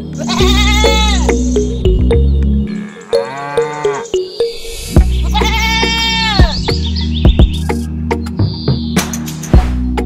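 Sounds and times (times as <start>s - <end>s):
background music with plucked notes: 0.0s - 10.0s
sheep bleating: 0.2s - 1.4s, 2.7s - 4.1s, 5.2s - 6.6s.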